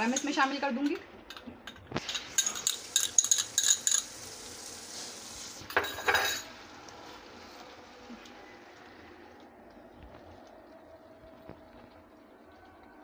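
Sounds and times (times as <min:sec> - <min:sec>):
spoon clinking and scraping: 0:00.0 - 0:04.2, 0:05.7 - 0:06.5
faint sizzle from pot: 0:00.0 - 0:13.0.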